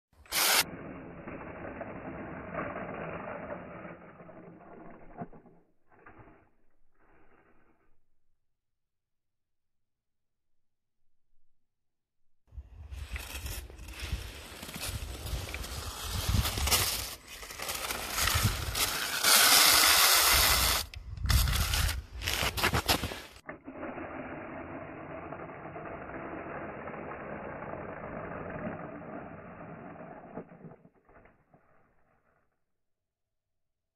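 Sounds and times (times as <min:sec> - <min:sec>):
toy snowmobile motor and track: 0:00.2 - 0:07.8, 0:12.8 - 0:32.5.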